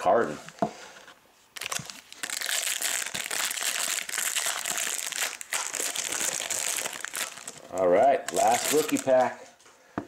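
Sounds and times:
foil wrapper crinkling: 1.6s - 9.4s.

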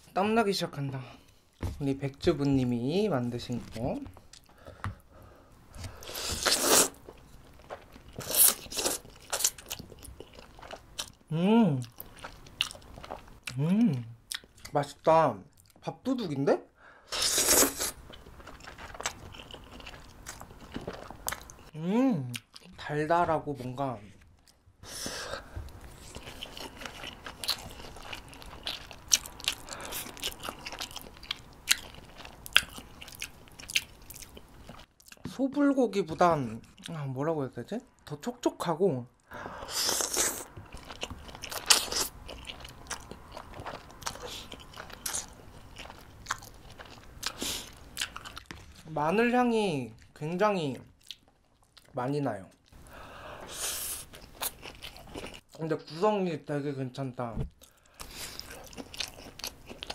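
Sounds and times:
close chewing: 5.8s - 11.2s, 17.5s - 21.7s, 25.4s - 35.2s, 39.4s - 49.1s, 54.0s - 55.6s, 57.6s - 59.9s
person slurping noodles: 6.0s - 7.0s, 17.1s - 18.0s.

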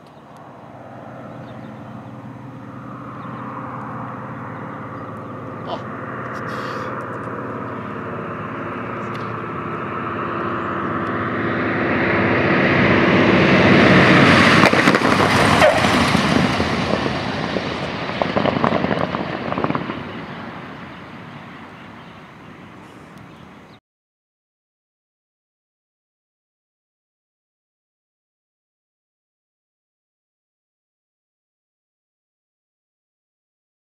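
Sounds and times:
radial piston aircraft engine: 0.0s - 23.8s
crackling: 14.6s - 21.4s.

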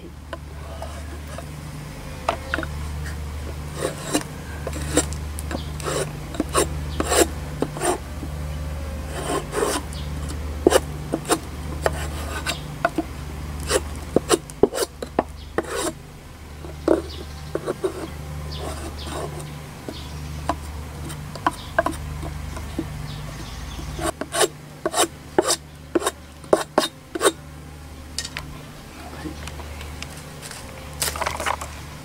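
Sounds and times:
metal spatula scraping wood: 0.4s - 1.6s, 2.2s - 8.3s, 9.0s - 16.0s, 16.6s - 27.4s.

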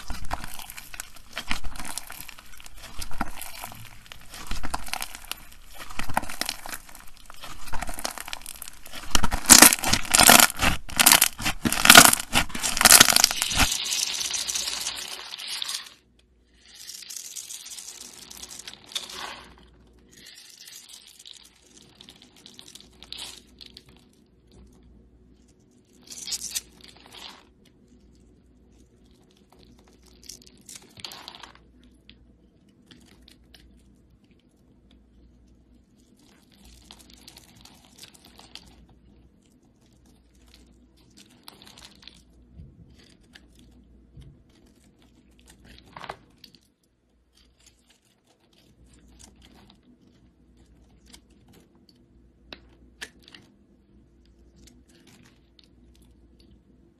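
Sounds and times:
slime crackling and tearing: 0.0s - 16.0s, 16.7s - 24.0s, 40.1s - 42.3s
soap scraping and crumbling: 0.0s - 24.0s.

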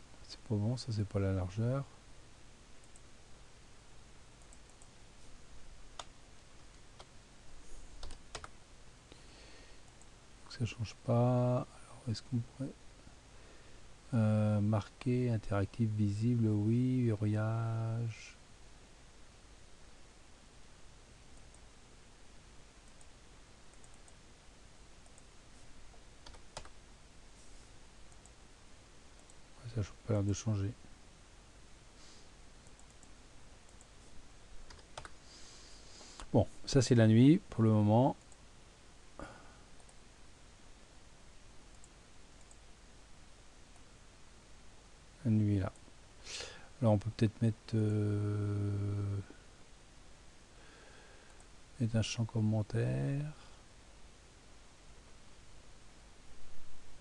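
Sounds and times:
faint low hum: 0.0s - 57.0s
steady low hiss: 0.0s - 57.0s
computer mouse clicks: 4.4s - 4.9s, 8.0s - 8.6s, 23.7s - 24.2s, 26.2s - 26.8s, 32.6s - 33.9s, 34.6s - 35.2s, 41.7s - 42.6s
keyboard clicks: 8.0s - 8.6s, 26.2s - 26.8s, 34.6s - 35.2s.

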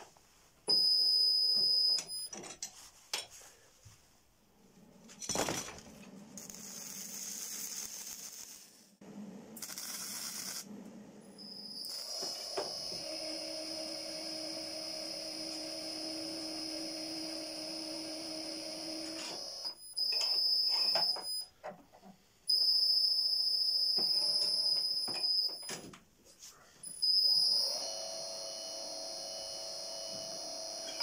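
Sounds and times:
electric drive high whine: 11.2s - 21.3s, 27.0s - 31.0s.

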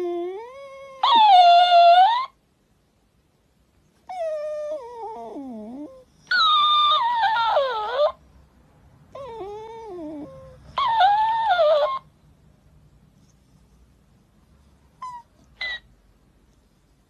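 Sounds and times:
dog whining: 0.0s - 2.4s, 4.0s - 8.2s, 9.1s - 12.1s, 15.0s - 16.0s.

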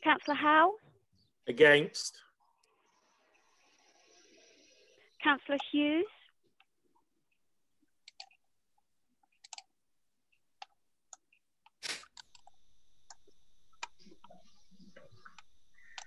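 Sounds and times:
faint high whine: 1.5s - 6.3s, 12.2s - 16.0s
faint mouse and keyboard clicks: 8.1s - 8.4s, 10.6s - 16.0s.

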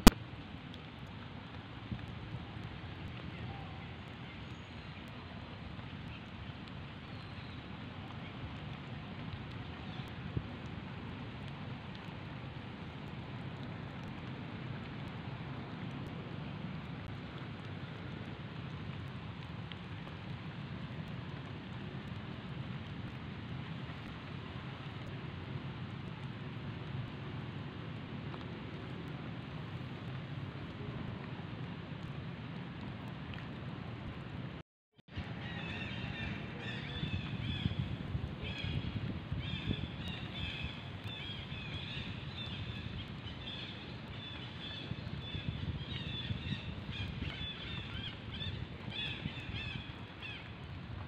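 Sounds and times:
outdoor background rushing noise: 0.0s - 51.0s
faint tick: 32.8s - 33.5s.

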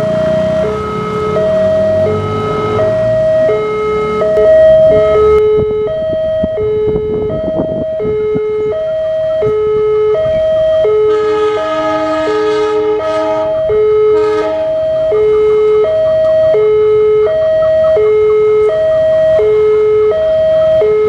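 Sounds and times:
level crossing two-tone alarm: 0.0s - 21.0s
locomotive horn blasts: 9.5s - 16.0s.

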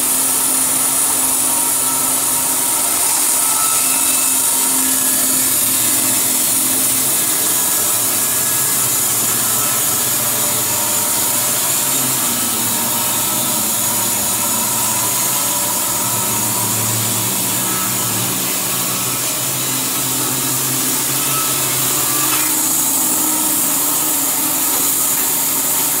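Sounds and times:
band saw cutting a log: 0.0s - 26.0s.

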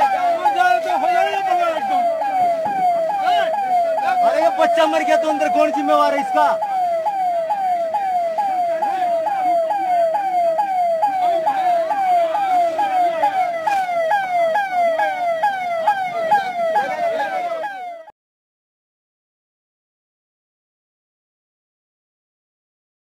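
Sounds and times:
ambulance siren: 0.0s - 18.1s.

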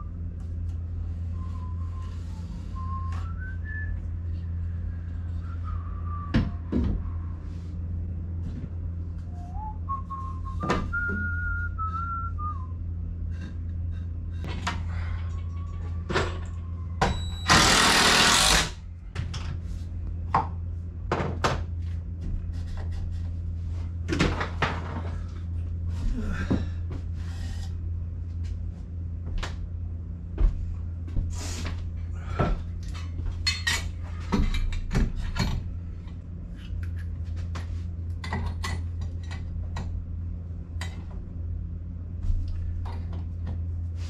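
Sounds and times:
steady low hum: 0.0s - 44.0s
person whistling: 1.3s - 6.7s, 9.3s - 12.8s
loud burst of noise: 17.4s - 18.8s.

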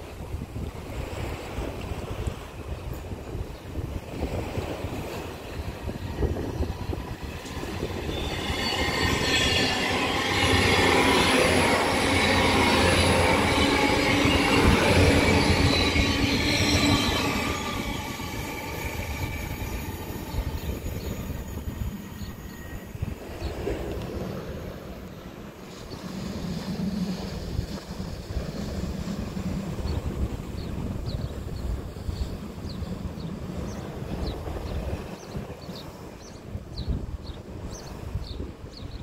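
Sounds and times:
train passing rumble: 0.0s - 38.7s
wheels whining on rails: 1.0s - 36.2s.

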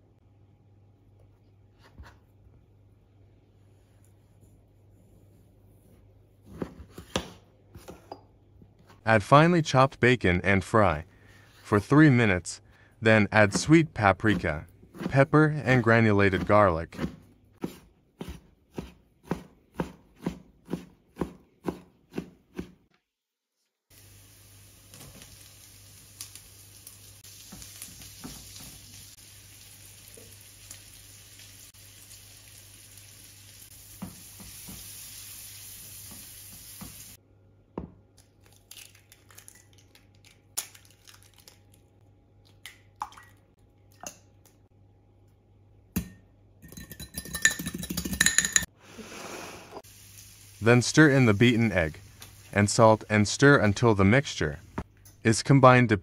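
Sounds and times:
knife chopping on stone board: 16.4s - 22.8s
bacon sizzling in a pan: 23.9s - 37.2s, 49.8s - 52.6s
fork clinking against glass: 46.7s - 48.7s.

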